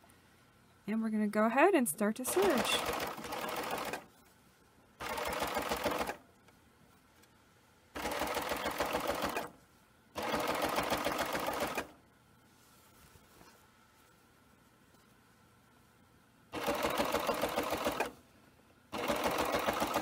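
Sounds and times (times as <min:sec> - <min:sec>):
serger sewing machine stitching: 0:02.3 - 0:04.1, 0:05.0 - 0:06.2, 0:08.0 - 0:09.6, 0:10.2 - 0:12.0, 0:16.6 - 0:18.1, 0:18.9 - 0:20.0.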